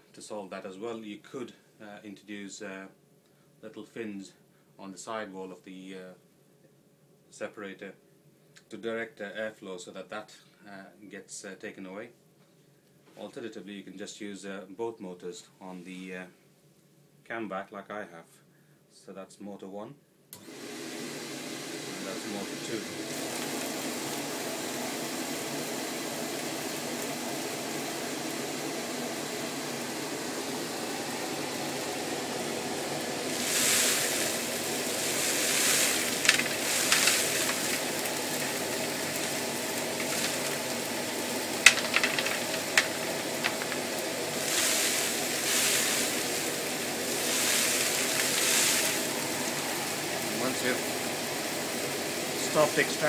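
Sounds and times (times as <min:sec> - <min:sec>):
dust extractor motor whine: 0:20.4 - 0:53.0.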